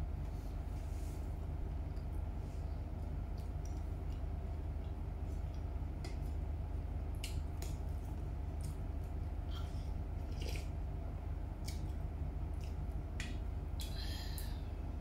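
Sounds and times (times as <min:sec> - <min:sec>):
steady low hum: 0:00.0 - 0:15.0
chewing and wet mouth sounds: 0:02.9 - 0:10.8, 0:11.5 - 0:14.6.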